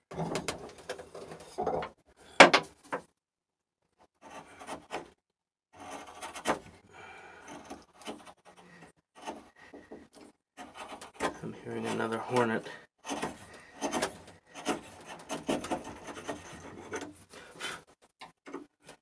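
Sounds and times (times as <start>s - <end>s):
chisel scraping wood: 4.2s - 5.2s, 5.8s - 18.7s.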